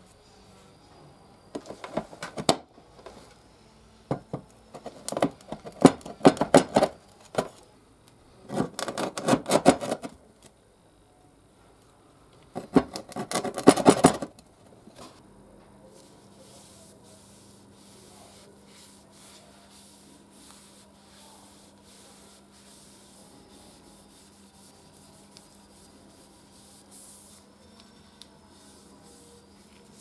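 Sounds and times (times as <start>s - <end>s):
hand rubbing: 16.0s - 30.0s.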